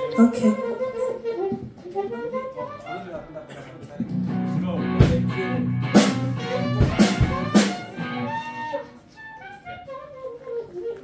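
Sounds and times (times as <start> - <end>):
guitar and bass chords: 4.1 - 8.6
loud drum and cymbal hits: 4.2 - 8.2.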